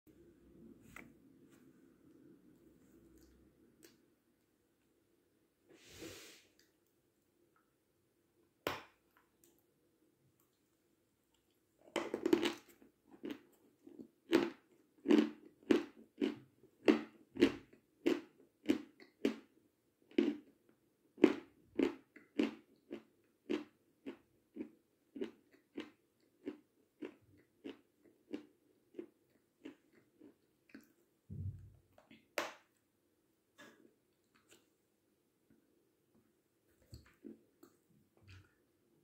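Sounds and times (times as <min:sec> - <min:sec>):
low thump: 0:31.3 - 0:31.8.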